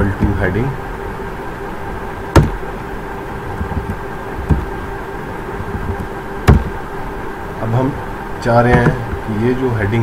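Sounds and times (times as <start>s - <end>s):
background hum: 0.0s - 10.0s
faint steady tones: 0.0s - 10.0s
soft knock: 2.4s - 2.6s, 5.8s - 6.8s.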